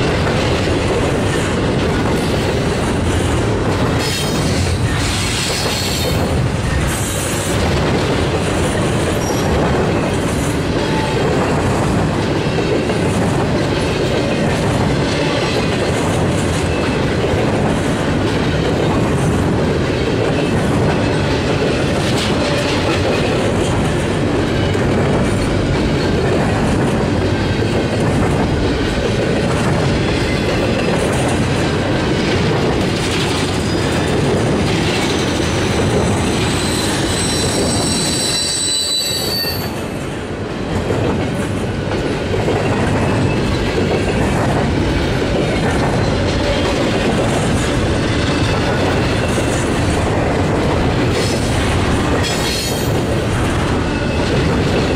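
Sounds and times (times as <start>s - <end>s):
train wheels rumbling on rails: 0.0s - 54.9s
high wheel squeal: 36.0s - 39.8s.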